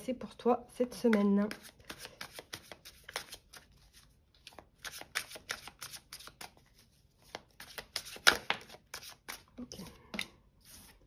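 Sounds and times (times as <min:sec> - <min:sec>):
cards being shuffled: 0:01.1 - 0:09.5.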